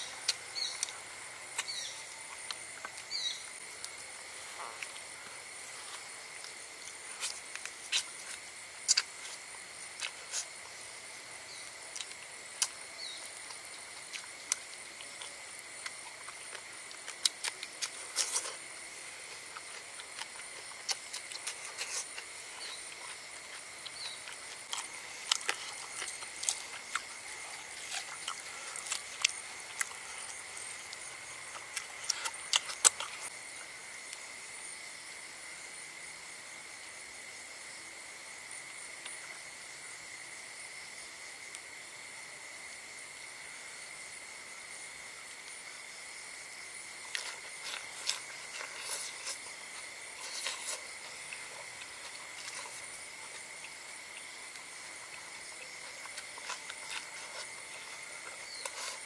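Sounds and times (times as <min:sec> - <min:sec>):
eating sounds: 0:00.0 - 0:33.8, 0:46.6 - 0:59.0
high insect chorus: 0:00.0 - 0:59.0.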